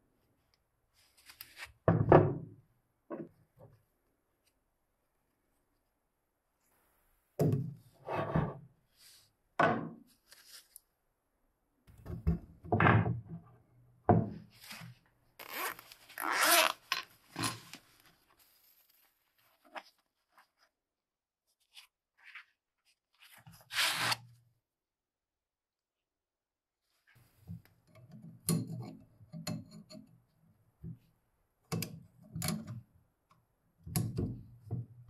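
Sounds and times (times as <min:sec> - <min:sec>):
fabric pouch rustling: 0:15.4 - 0:20.8.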